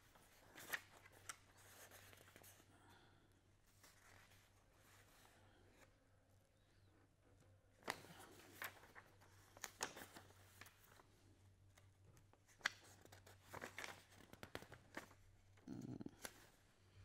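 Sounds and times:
paper rustling: 0.0s - 2.6s, 7.7s - 11.1s, 11.7s - 15.2s.

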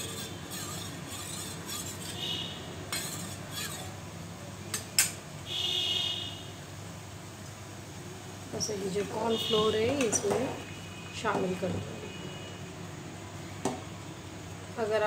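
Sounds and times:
spoon stirring in metal bowl: 0.0s - 4.0s.

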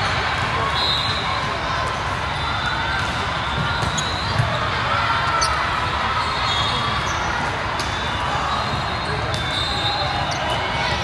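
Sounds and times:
volleyballs bouncing and hit: 2.9s - 4.8s.

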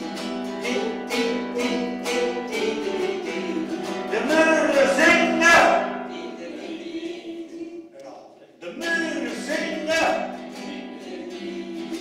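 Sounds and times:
nylon-string guitar strumming: 0.0s - 6.1s
man singing: 0.5s - 12.0s.

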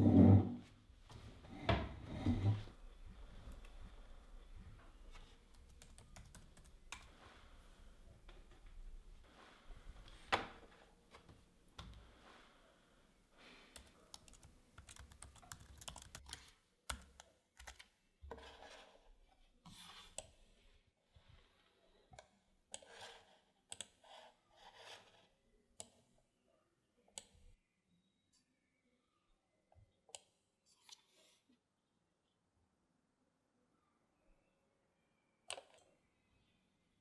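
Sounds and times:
typing on laptop keyboard: 5.6s - 7.1s, 13.8s - 17.9s.

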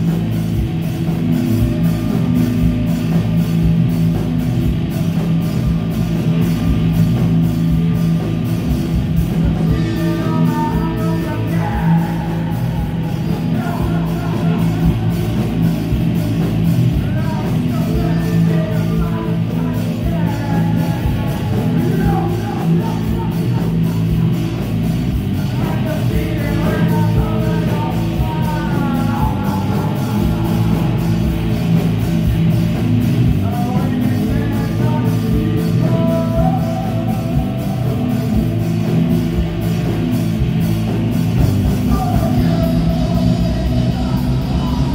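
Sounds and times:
bass guitar: 0.0s - 44.9s
drums: 0.0s - 44.9s
electric guitar: 0.0s - 44.9s
man singing: 9.3s - 24.6s, 25.2s - 31.8s, 33.2s - 39.0s, 41.6s - 44.9s.

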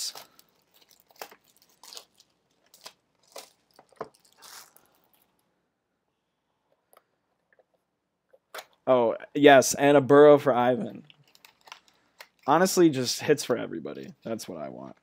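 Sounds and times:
plastic wrap crinkling: 0.0s - 5.5s, 11.0s - 12.9s.

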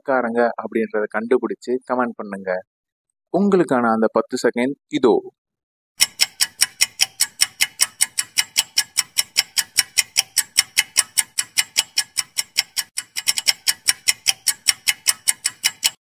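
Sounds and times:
sharp clock ticks: 6.0s - 16.0s.

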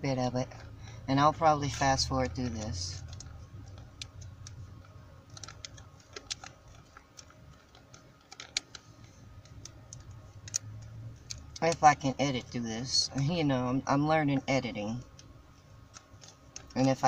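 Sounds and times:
foil pouch crinkling: 0.4s - 11.8s.

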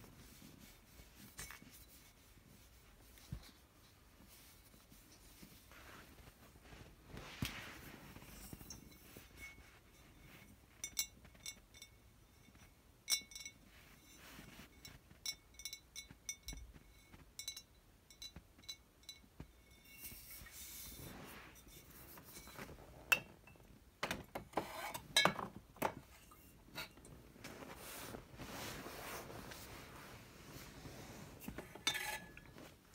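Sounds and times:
soft scraping rustle: 0.0s - 11.7s, 13.4s - 15.4s, 19.4s - 23.4s, 26.0s - 32.9s
glass bottles clinking: 25.0s - 26.5s.

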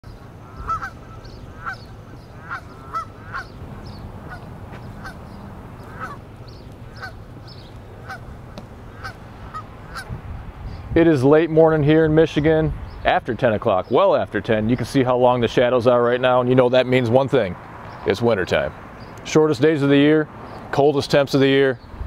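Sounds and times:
geese honking: 0.1s - 10.2s.

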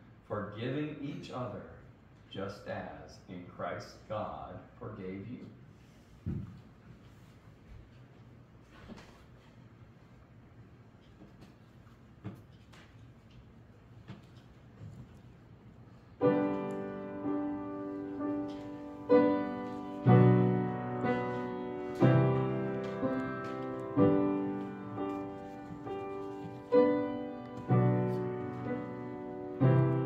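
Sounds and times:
piano playing slow hymn chords: 16.2s - 30.0s.

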